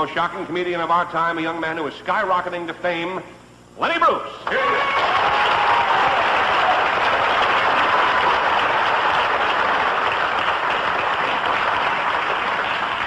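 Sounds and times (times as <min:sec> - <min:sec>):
studio audience applauding: 0:04.4 - 0:13.0.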